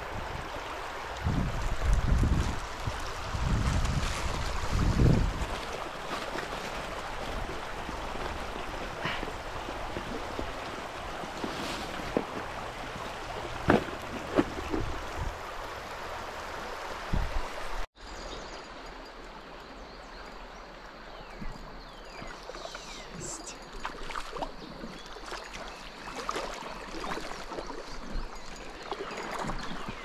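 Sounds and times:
river water flowing: 0.0s - 30.0s.

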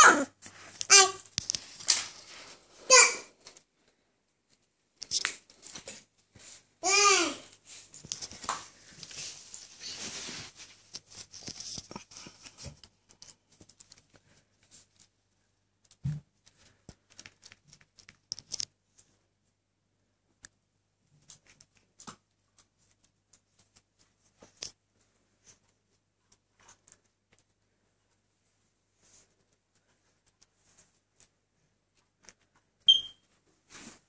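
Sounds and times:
puppies rustling on a rug: 7.5s - 15.0s.

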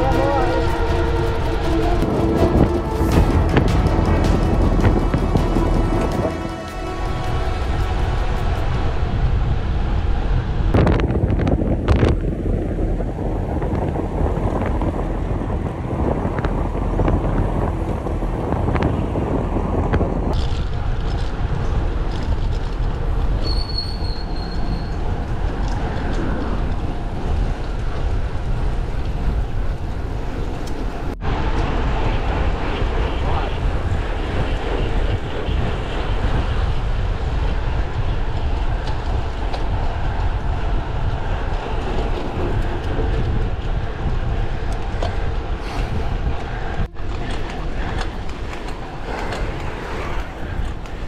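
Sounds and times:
road noise: 0.0s - 51.0s
wind rushing over microphone: 0.0s - 51.0s.

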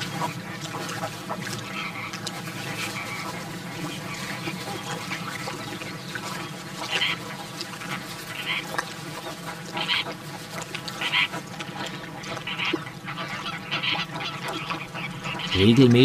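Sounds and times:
flamingos calling: 0.0s - 16.0s
flock background noise: 13.0s - 16.0s.

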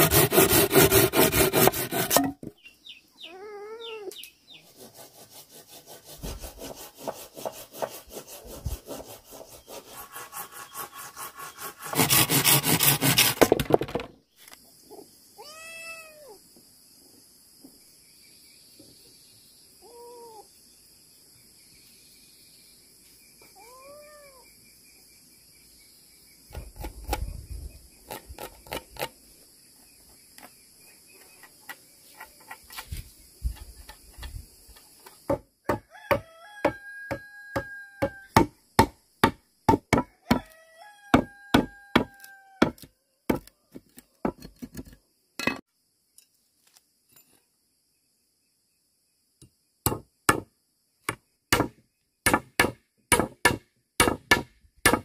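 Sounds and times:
blade chopping bamboo: 0.0s - 2.5s, 52.3s - 55.0s
rooster crowing: 35.7s - 38.4s, 40.0s - 42.8s.

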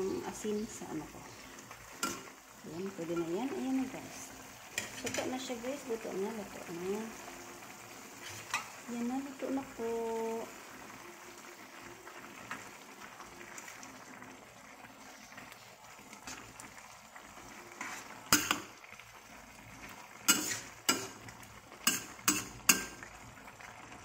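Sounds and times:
hot pan hissing: 0.0s - 24.0s
metal ladle stirring in a wok: 1.9s - 2.4s, 4.7s - 5.4s, 8.2s - 8.7s, 17.7s - 18.8s, 20.2s - 23.0s.

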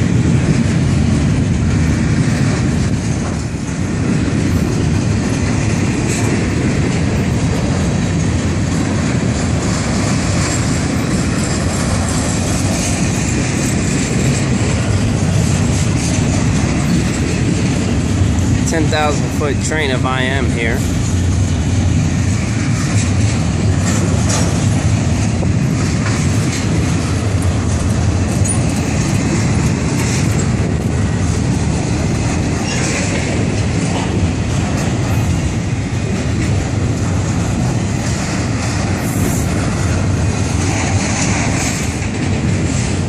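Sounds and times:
freight train wheels rumbling on rails: 0.0s - 43.0s.

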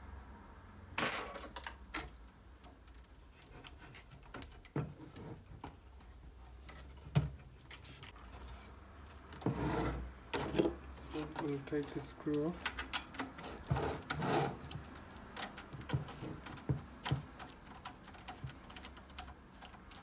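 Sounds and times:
computer case scraping on wooden desk: 9.4s - 10.8s, 13.4s - 14.7s.

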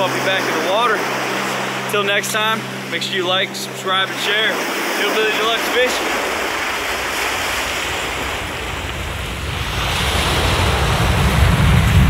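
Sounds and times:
surf washing onto beach: 0.0s - 12.0s
wind buffeting microphone: 6.0s - 12.0s.

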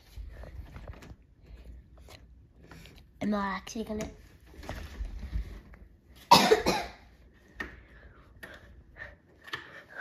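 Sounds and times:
person coughing: 6.3s - 7.1s.

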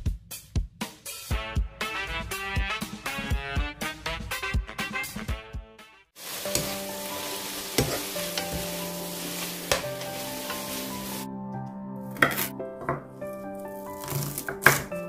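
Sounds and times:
vegetables sizzling in a pan: 6.2s - 11.3s
wooden spatula knocking on pan: 7.8s - 8.8s, 9.7s - 10.7s.

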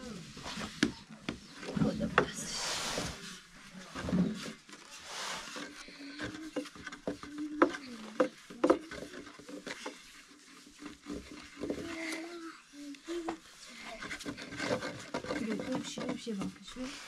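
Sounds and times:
rolling pin rubbing dough: 0.0s - 17.0s
wooden clicks and knocks: 6.1s - 10.0s.

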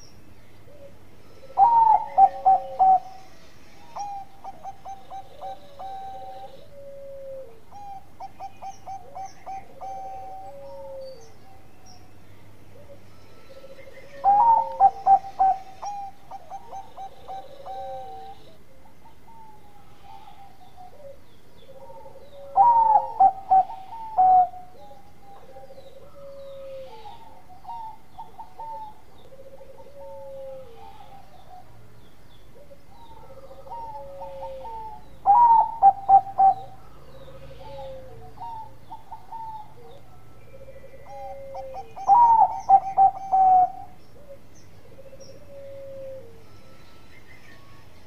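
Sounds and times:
dove cooing: 0.6s - 47.8s.

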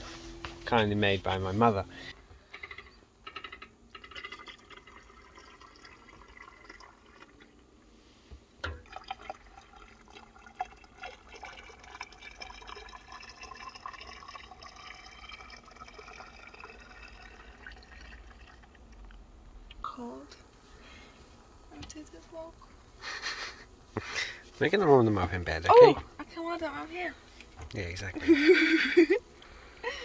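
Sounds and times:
water poured into hot water bottle: 4.0s - 7.6s, 8.8s - 19.2s.

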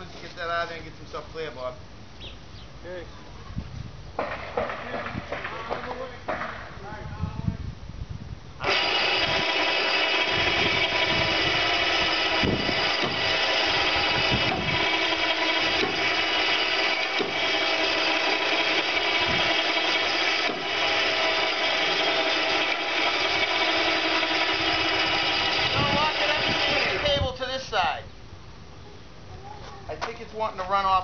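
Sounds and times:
winch whining under load: 8.6s - 27.7s.

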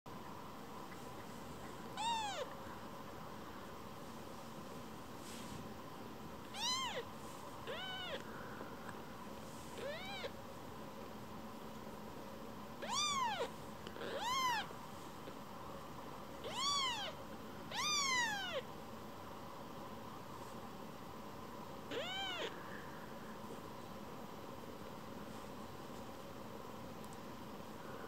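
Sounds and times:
kitten mewing: 2.0s - 2.5s, 6.5s - 7.0s, 7.7s - 8.2s, 12.8s - 14.7s, 16.4s - 18.6s, 21.9s - 22.5s.

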